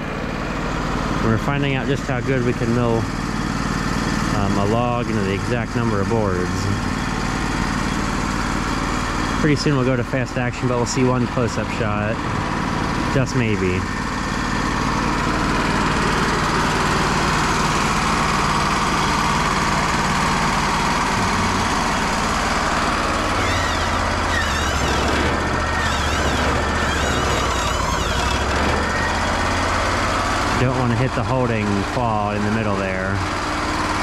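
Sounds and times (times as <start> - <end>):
sawmill engine and saw: 0.0 - 34.0
high wavering whine: 13.1 - 33.1.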